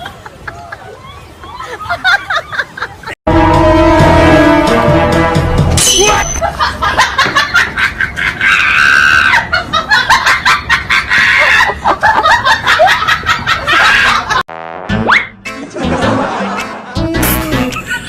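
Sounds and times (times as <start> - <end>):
people laughing and screaming: 0.0 - 3.2, 6.1 - 14.4.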